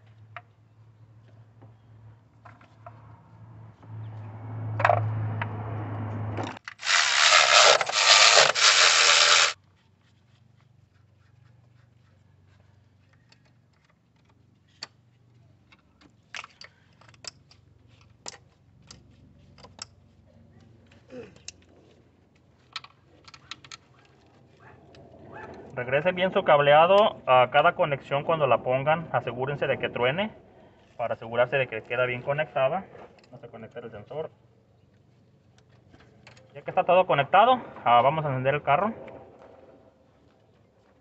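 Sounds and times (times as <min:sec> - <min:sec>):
clicks and knocks of tools: 0:15.6 - 0:20.0.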